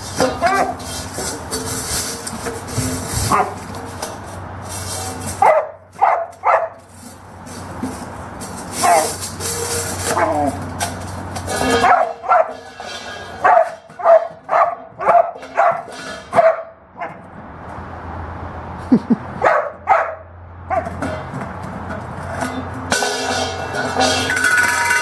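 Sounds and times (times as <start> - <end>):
dog barking: 5.4 - 6.8, 11.8 - 12.6, 13.4 - 15.8, 16.4 - 17.2, 19.4 - 20.9
metal water bowl clanking: 7.5 - 16.4, 20.9 - 25.0.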